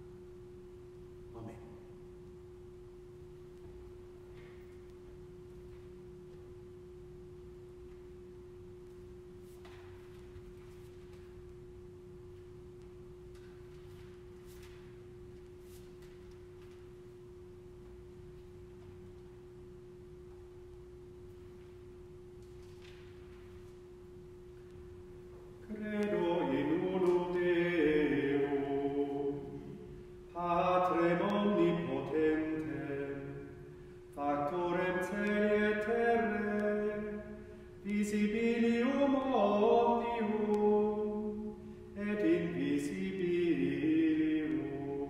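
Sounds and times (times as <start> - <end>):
faint steady hum: 0.0 - 45.0
soft rustles: 13.3 - 17.1.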